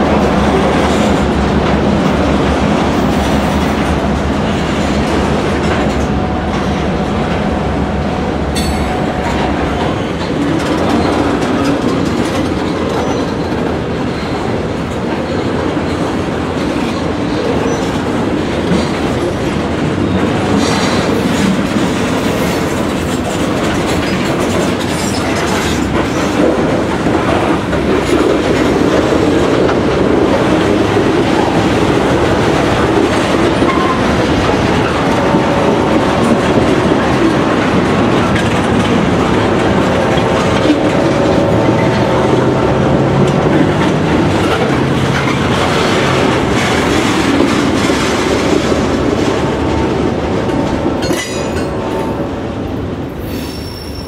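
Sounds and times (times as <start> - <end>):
wheels clacking over rail joints: 0.0 - 52.2
freight train rumble: 0.0 - 54.0
faint thin wheel squeal: 53.3 - 54.0.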